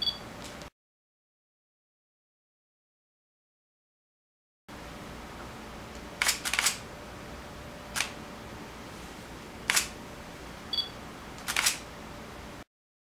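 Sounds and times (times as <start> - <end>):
two-tone electronic beep: 0.0 - 0.2
camera shutter clicks: 6.2 - 6.8, 7.9 - 8.2, 9.7 - 10.0, 11.4 - 11.8.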